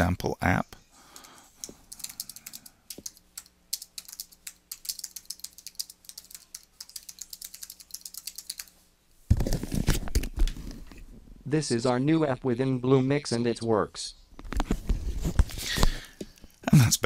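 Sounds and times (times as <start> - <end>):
keyboard typing clicks: 1.2 - 8.7.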